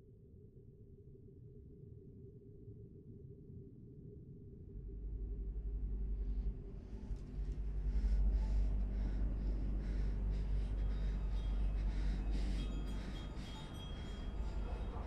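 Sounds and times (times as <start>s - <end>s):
low rumbling drone: 4.7s - 15.0s
woman breathing quickly: 7.5s - 15.0s
faint high ringing tones: 11.3s - 15.0s.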